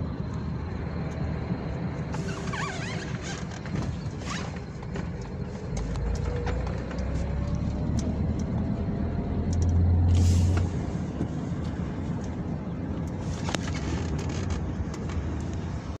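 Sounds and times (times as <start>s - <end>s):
vehicle engine and road rumble: 0.0s - 16.0s
short hiss: 10.1s - 10.9s.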